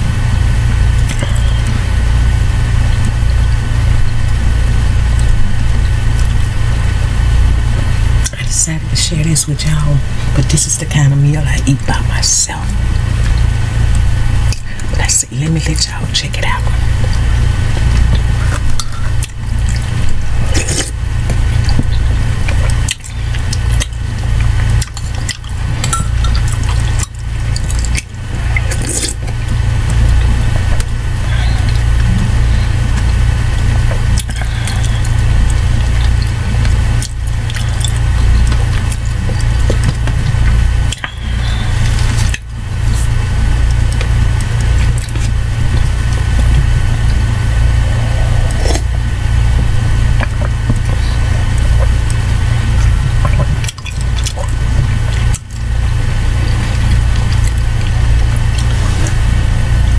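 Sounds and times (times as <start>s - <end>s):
loud steady low hum: 0.0s - 59.9s
liquid sloshing: 16.4s - 59.7s.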